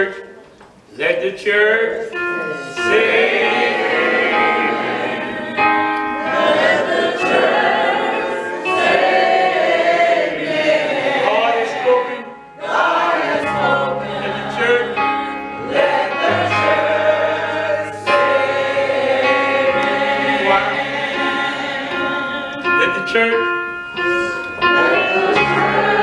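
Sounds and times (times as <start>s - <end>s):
keyboard accompaniment: 0.0s - 26.0s
gospel choir singing: 2.1s - 26.0s
low bass notes: 13.6s - 18.8s.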